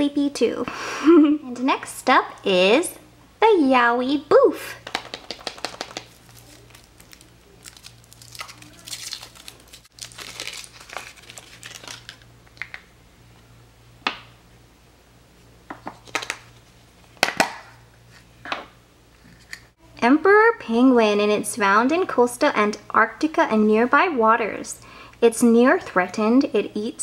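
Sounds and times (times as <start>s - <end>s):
foil wrapper crinkling and tearing: 5.5s - 12.9s.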